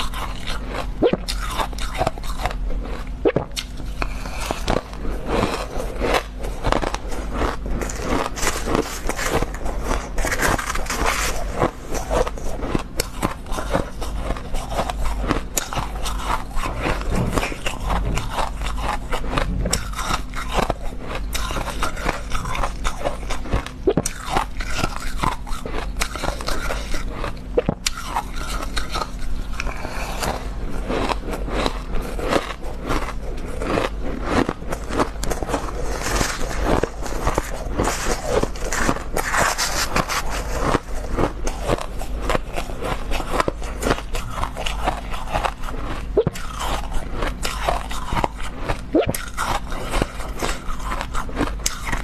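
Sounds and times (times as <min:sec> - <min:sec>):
crunching ice in mouth: 0:00.0 - 0:52.0.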